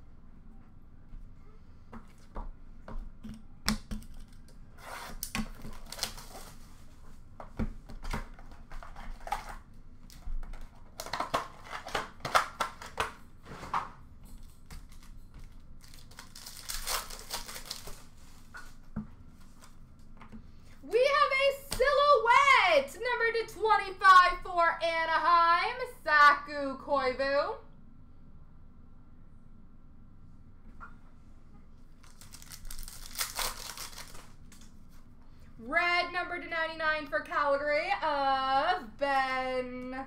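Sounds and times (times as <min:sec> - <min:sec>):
wrappers crinkling and tearing: 0:04.8 - 0:07.0, 0:08.4 - 0:13.0, 0:14.7 - 0:18.8, 0:32.0 - 0:34.7.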